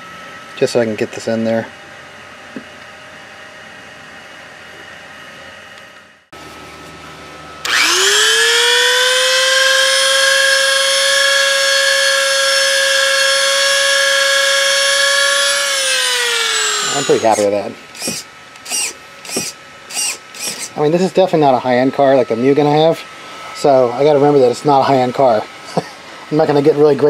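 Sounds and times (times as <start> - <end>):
rotary tool whining: 7.6 - 20.9.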